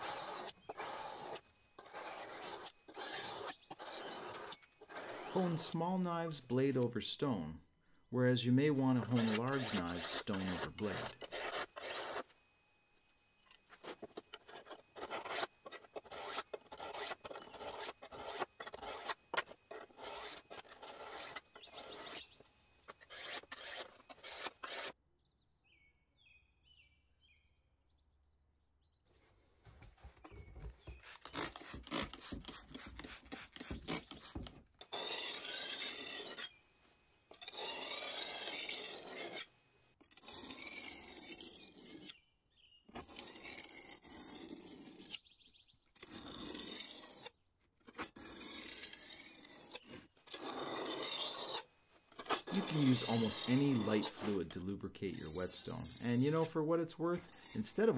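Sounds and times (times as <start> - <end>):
sharpening stone scraping knife blade: 0.0 - 5.8, 9.0 - 12.2, 14.2 - 22.4, 23.0 - 25.0, 31.2 - 36.6, 37.3 - 42.2, 48.0 - 54.4, 55.1 - 56.6, 57.2 - 57.9.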